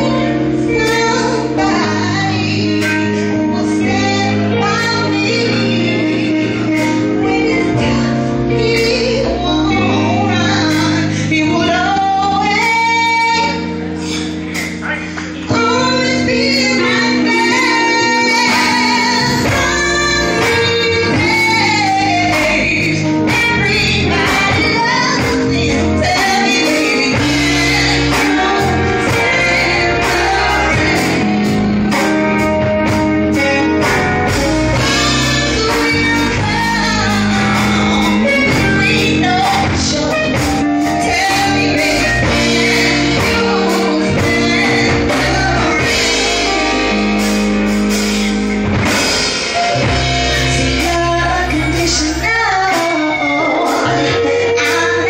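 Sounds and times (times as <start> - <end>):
woman singing into microphone: 0.0 - 14.5, 15.5 - 32.4, 33.3 - 47.3, 50.4 - 55.0
music with regular beat: 23.3 - 51.2.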